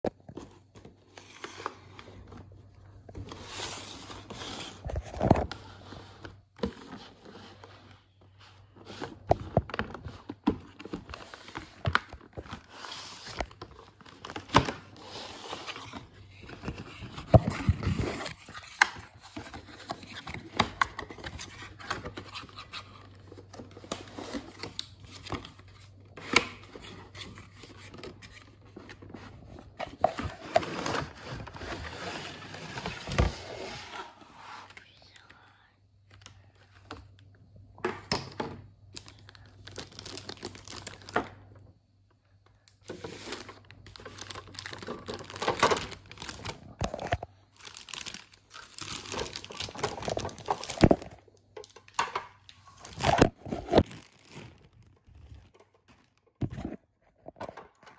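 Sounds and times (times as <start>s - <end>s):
cardboard scraping and crinkling: 0.3s - 34.8s, 42.9s - 51.2s, 52.6s - 57.6s.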